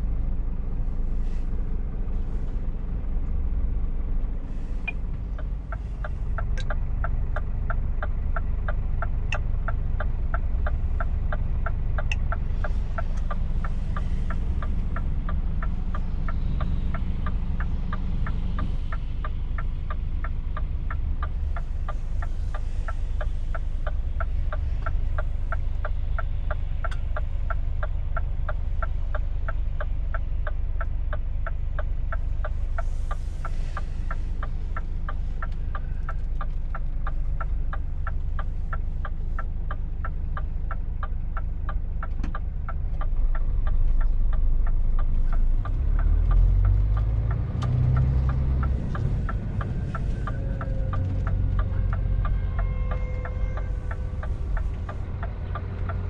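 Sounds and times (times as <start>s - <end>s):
diesel truck engine idling: 0.0s - 56.0s
turn indicator ticking: 1.6s - 56.0s
truck pulling away: 32.5s - 56.0s.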